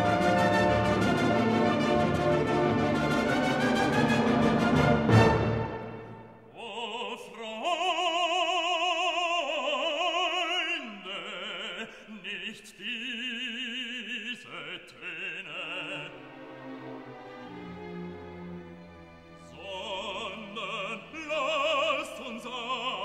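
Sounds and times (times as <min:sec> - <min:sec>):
operatic voice singing: 0:06.5 - 0:16.5, 0:19.4 - 0:23.0.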